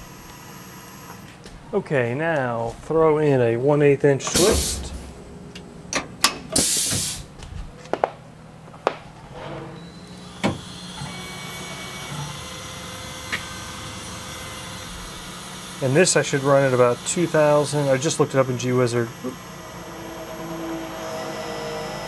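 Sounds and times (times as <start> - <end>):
electric whine of mill: 0.0 - 1.4, 4.2 - 7.8, 9.9 - 22.0
low hum: 4.2 - 6.6
short hiss: 4.3 - 5.2, 6.6 - 7.3.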